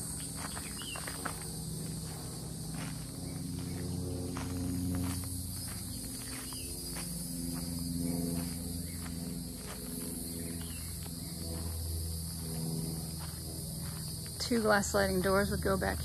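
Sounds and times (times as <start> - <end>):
footsteps on gravel: 0.0 - 15.9
high-pitched insect chorus: 0.0 - 16.0.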